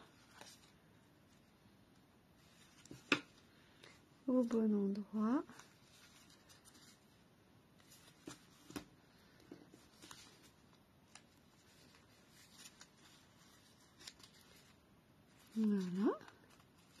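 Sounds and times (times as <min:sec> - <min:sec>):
card stock rustling: 0:07.8 - 0:17.0.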